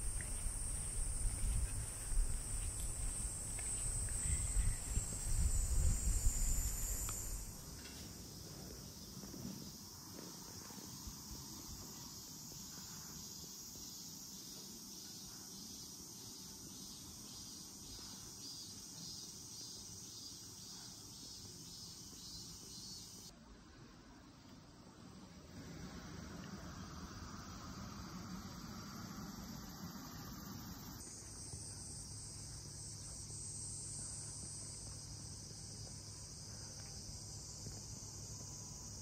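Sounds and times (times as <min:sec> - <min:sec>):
wind buffeting microphone: 0:00.0 - 0:07.6
insects chirring: 0:00.0 - 0:23.3, 0:25.8 - 0:39.0.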